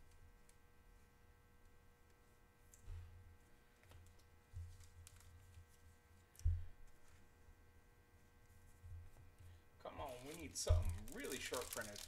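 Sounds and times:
soft low thumps on tabletop: 10.6s - 11.0s.

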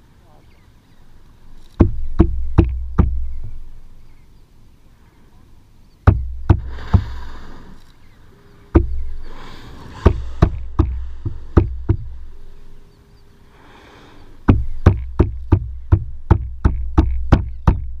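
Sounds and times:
knuckles knocking on plastic hull: 1.8s - 3.3s, 10.0s - 12.2s, 14.5s - 18.0s
whale blowing: 6.3s - 14.8s.

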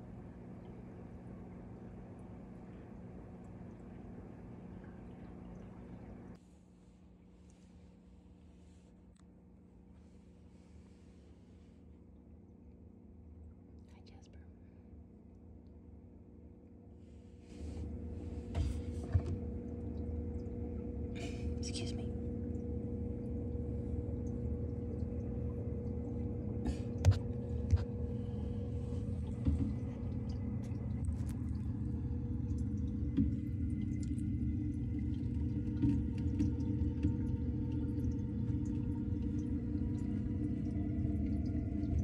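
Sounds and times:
aquarium pumps humming: 0.0s - 42.0s
water moving: 17.0s - 42.0s.

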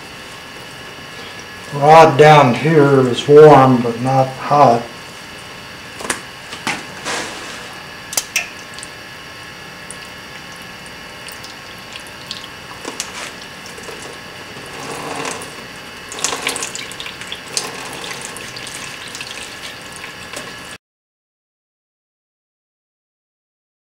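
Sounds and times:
cloth scraping on metal: 6.9s - 7.8s, 14.0s - 15.6s.

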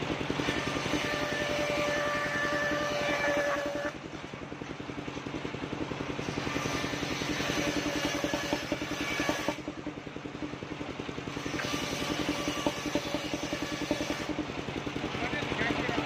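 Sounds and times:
circular saw blade cutting wood: 0.0s - 4.2s, 6.1s - 9.9s, 11.2s - 14.5s
engine chugging: 0.0s - 16.0s.

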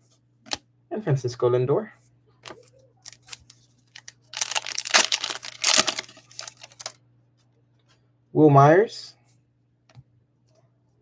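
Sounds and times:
foil wrapper tearing and crinkling: 3.0s - 7.0s.

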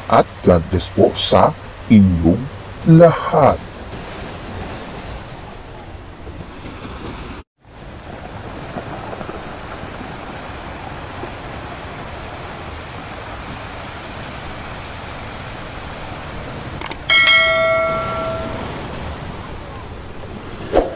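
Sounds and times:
ocean surf: 0.0s - 20.9s
bell chime ringing: 17.0s - 19.0s.

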